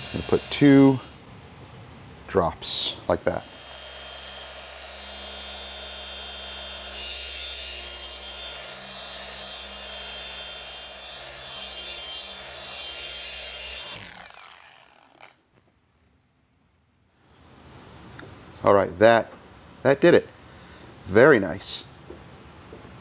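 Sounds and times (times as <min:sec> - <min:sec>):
polisher running: 0:00.0 - 0:01.2, 0:03.4 - 0:15.2.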